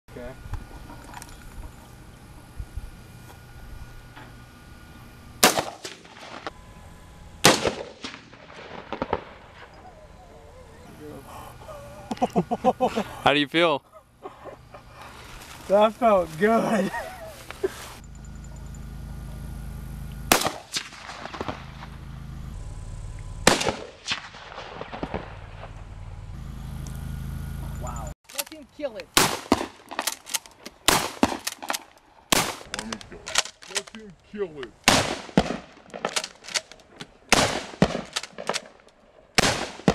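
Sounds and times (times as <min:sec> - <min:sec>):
loud rifle shots: 0:05.4 - 0:06.5, 0:07.4 - 0:09.4, 0:20.3 - 0:21.9, 0:23.4 - 0:25.7, 0:29.2 - 0:32.8, 0:34.8 - 0:36.6, 0:37.3 - 0:38.8, 0:39.4 - 0:39.9.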